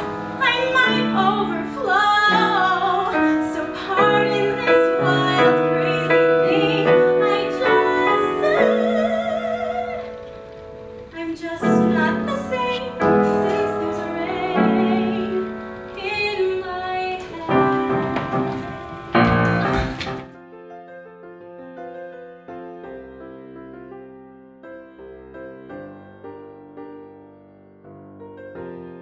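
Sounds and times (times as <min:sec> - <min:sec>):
woman singing with vibrato: 0:00.0 - 0:19.2
piano chords: 0:00.0 - 0:29.0.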